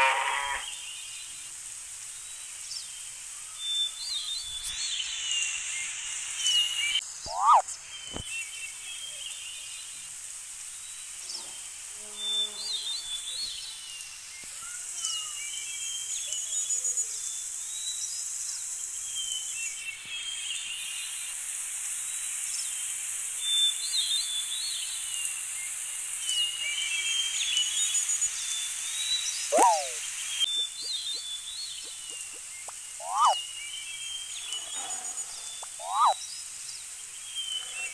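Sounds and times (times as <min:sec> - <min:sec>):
birds chirping: 0:00.0 - 0:05.7, 0:06.4 - 0:16.9, 0:24.4 - 0:37.9
steady high hiss: 0:00.0 - 0:37.9.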